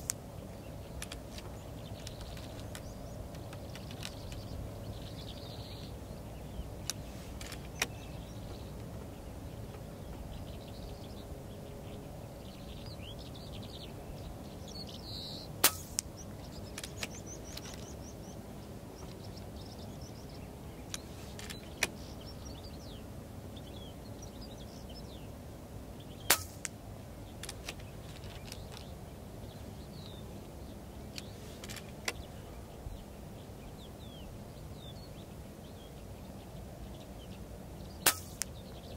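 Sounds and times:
faint bird chirps: 0:00.0 - 0:25.4
air rifle cracks: 0:15.6 - 0:16.2, 0:26.3 - 0:26.8, 0:38.0 - 0:38.6.

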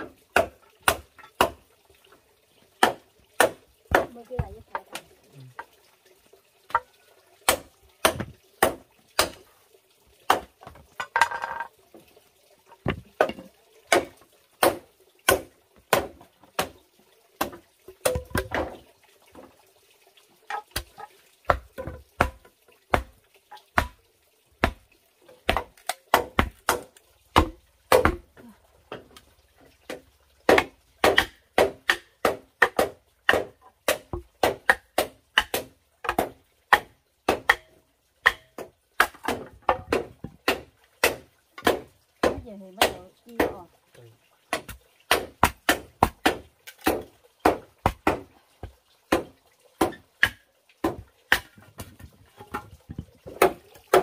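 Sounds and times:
machete chopping bamboo: 0:00.3 - 0:01.6, 0:02.8 - 0:05.0, 0:07.4 - 0:09.5, 0:10.3 - 0:10.8, 0:12.9 - 0:16.8, 0:17.4 - 0:18.8, 0:20.7 - 0:24.0, 0:24.6 - 0:24.8, 0:25.4 - 0:29.0, 0:29.9 - 0:43.6, 0:44.5 - 0:48.3, 0:49.1 - 0:52.6, 0:53.3 - 0:54.0.

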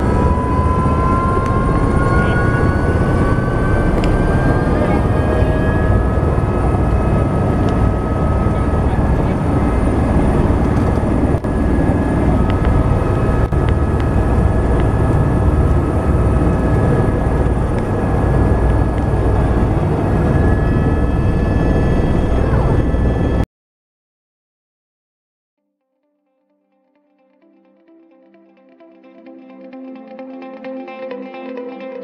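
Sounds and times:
helicopter engine and rotor rumble: 0:00.0 - 0:23.4.

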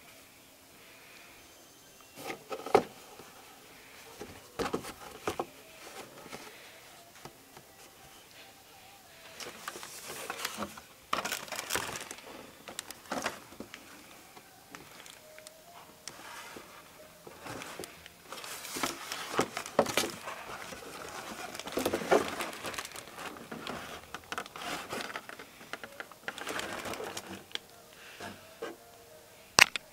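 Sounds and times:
cardboard boxes rustling and sliding: 0:09.4 - 0:13.7, 0:16.1 - 0:25.4, 0:26.3 - 0:27.4.

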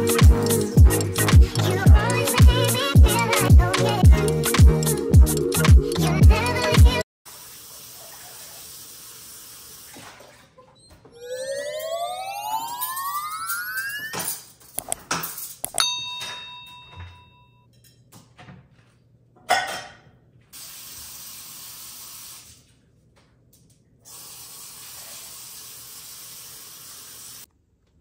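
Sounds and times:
glass ringing ding: 0:15.7 - 0:17.6.

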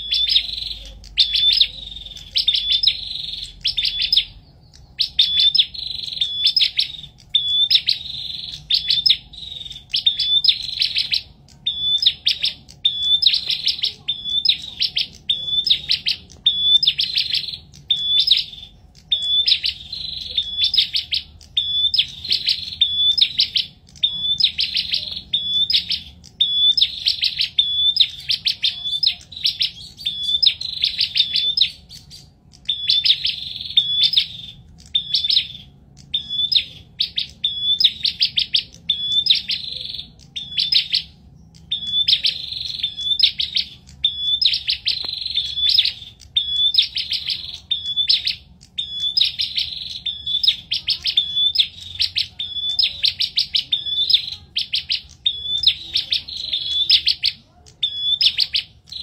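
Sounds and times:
songbirds chirping: 0:00.0 - 0:59.0.

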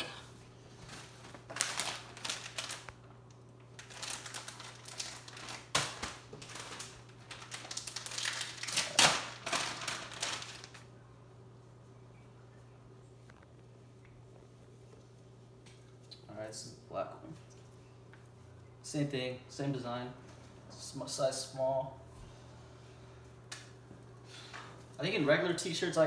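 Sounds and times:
plastic packaging rustling: 0:00.7 - 0:10.9.

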